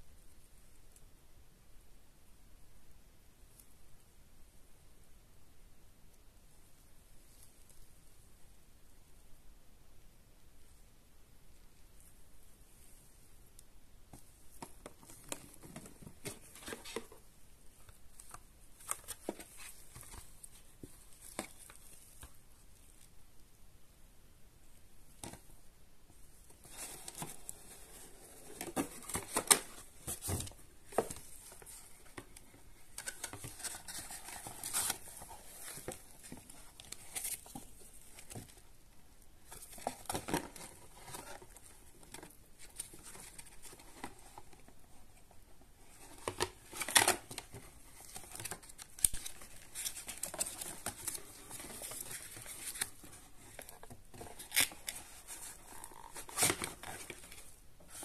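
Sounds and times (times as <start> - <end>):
cardboard rustling and scraping: 14.6 - 17.3, 17.9 - 22.4, 26.5 - 38.6, 39.4 - 58.0.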